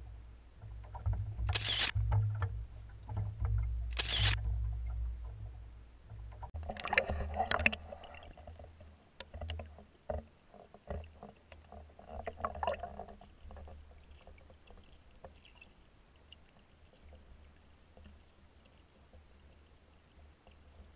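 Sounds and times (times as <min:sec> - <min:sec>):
low steady rumble: 0:00.0 - 0:10.5
muffled water sloshing and splashing: 0:00.0 - 0:20.9
faint clicks: 0:00.6 - 0:20.9.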